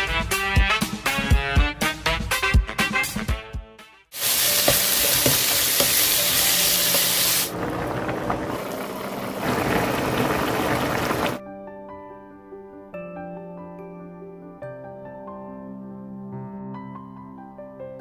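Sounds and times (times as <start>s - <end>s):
drum-backed music: 0.0s - 7.4s
meat sizzling in hot oil: 4.2s - 11.4s
sauce bubbling: 4.2s - 11.4s.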